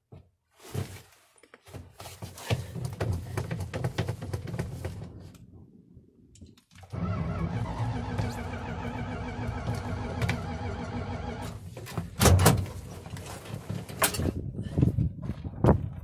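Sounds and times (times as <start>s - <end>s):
engine cranking roughly: 6.9s - 11.6s
engine running steadily: 7.0s - 11.6s.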